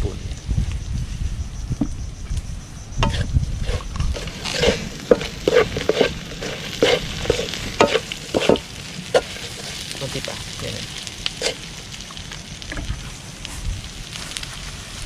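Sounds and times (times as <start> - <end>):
wooden spatula scraping wok: 3.0 - 11.6
food sizzling: 3.0 - 15.0.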